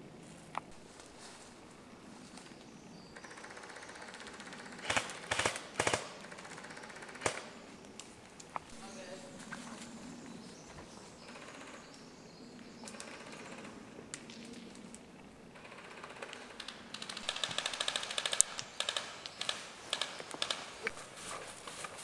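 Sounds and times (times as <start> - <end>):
airsoft rifle firing bursts: 3.6 - 7.5, 15.6 - 20.8.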